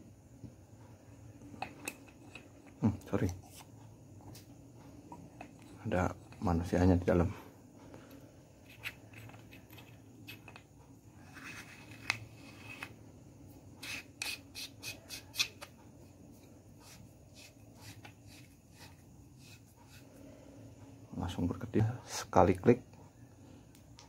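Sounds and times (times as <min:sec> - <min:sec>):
hands rubbing metal flashlight: 0:08.6 - 0:10.6, 0:16.4 - 0:20.0.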